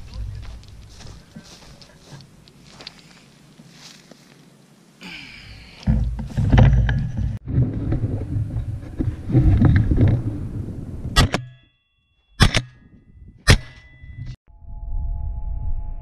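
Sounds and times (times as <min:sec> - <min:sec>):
dry grass rustling: 0:00.0 - 0:06.6
wind buffeting: 0:05.9 - 0:11.2.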